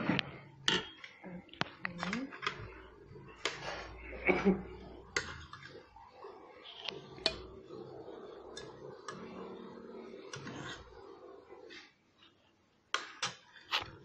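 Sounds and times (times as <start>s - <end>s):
metal spoon clinking on dishes: 0.7s - 1.2s.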